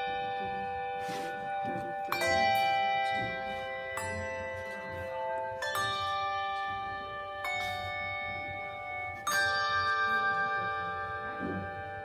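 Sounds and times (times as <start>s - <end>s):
handbell choir ringing chords: 0.0s - 12.0s.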